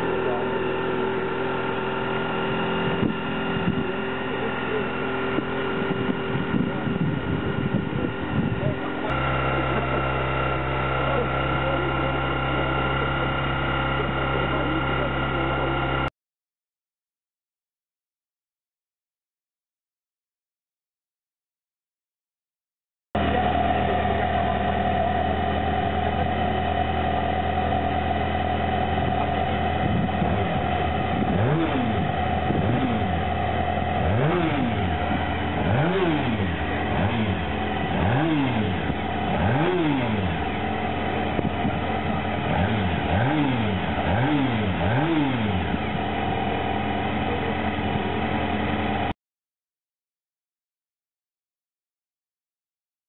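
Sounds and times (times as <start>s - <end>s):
engine idling: 0.0s - 16.1s, 23.2s - 49.1s
engine revving in throttle blips: 0.0s - 16.1s, 23.2s - 49.1s.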